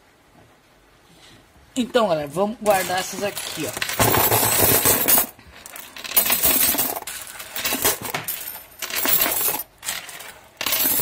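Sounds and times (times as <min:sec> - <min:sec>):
coins clinking and sliding on table: 0:02.6 - 0:11.0.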